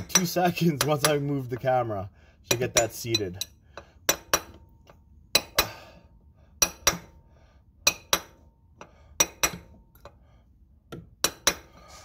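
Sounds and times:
hammer clinking on steel punch: 2.5s - 5.8s, 6.6s - 7.1s, 9.2s - 9.8s, 10.9s - 11.7s.

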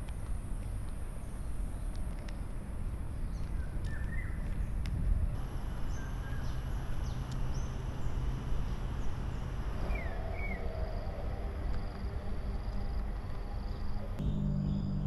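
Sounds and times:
birds chirping and whistling: 3.3s - 4.8s, 5.4s - 11.5s
low hum: 5.3s - 15.0s
steady background rush: 5.4s - 15.0s.

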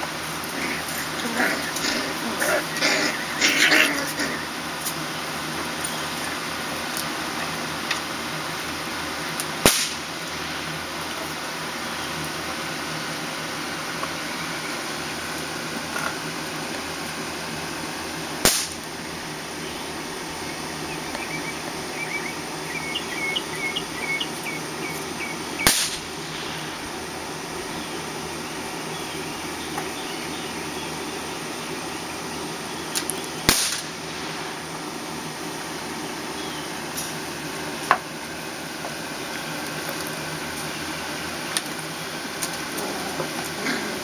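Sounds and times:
steady hiss: 0.0s - 22.8s, 23.6s - 44.0s
low background hum: 0.0s - 44.0s
firecracker bang: 9.6s - 10.2s, 18.4s - 18.8s, 25.6s - 26.8s, 33.5s - 34.5s.

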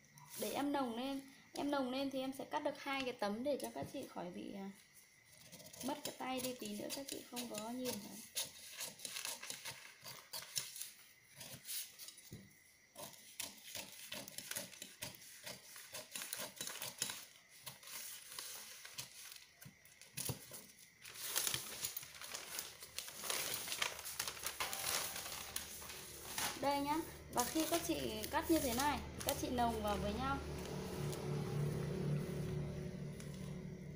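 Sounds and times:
shears snipping paper: 6.1s - 10.9s, 21.1s - 31.3s
paper sheets rustling: 20.5s - 30.0s.

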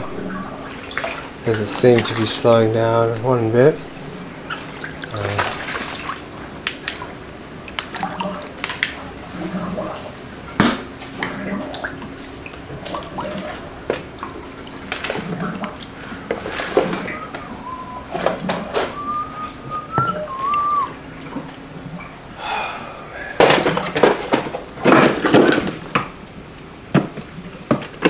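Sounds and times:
floodwater sloshing and splashing: 0.0s - 22.0s
water dripping: 0.0s - 22.4s.

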